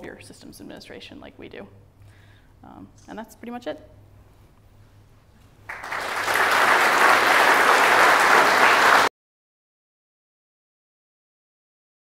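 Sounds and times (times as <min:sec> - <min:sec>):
audience applauding: 0:05.7 - 0:09.1.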